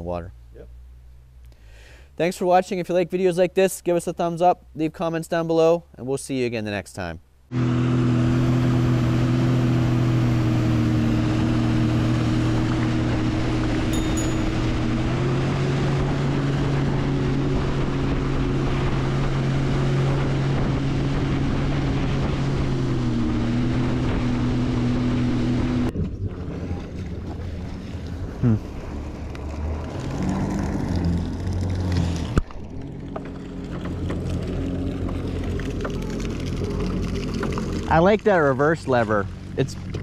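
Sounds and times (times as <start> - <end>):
watercraft engine running: 7.6 - 40.0
water rushing off hull: 11.6 - 40.0.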